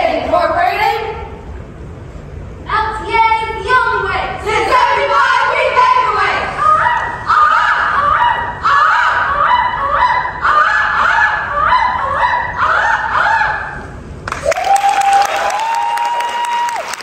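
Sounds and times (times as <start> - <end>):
women giving high rising calls: 3.4 - 17.0
applause: 14.2 - 17.0.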